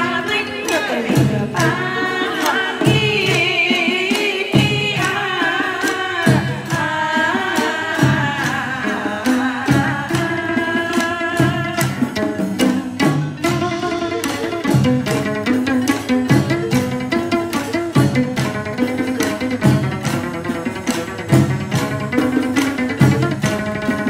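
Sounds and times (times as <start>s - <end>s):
women singing in unison: 0.0s - 13.8s
plucked lute: 0.0s - 24.0s.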